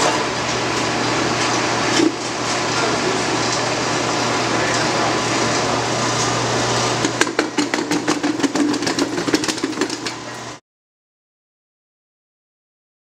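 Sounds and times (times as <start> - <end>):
machinery humming: 0.0 - 10.6
rapid clatter of knocks: 7.1 - 10.2.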